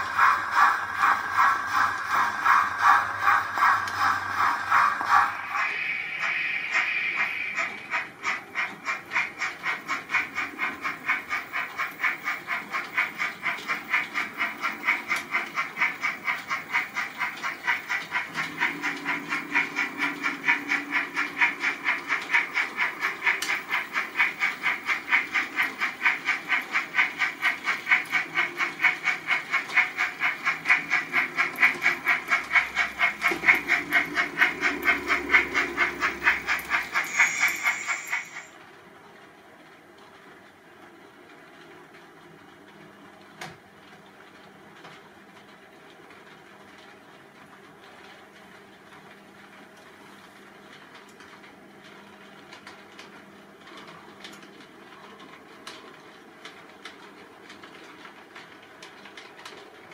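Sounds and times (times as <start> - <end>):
model steam locomotive chuffing: 0.0 - 38.8.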